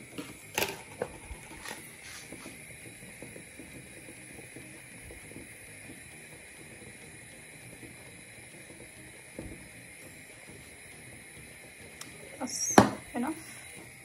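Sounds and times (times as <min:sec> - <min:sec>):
powder pouring into a bowl: 0:00.1 - 0:02.6.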